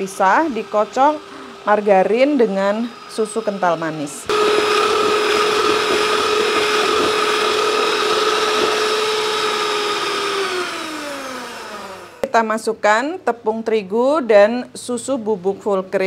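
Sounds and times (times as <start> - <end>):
electric hand mixer running: 0.0 - 12.3.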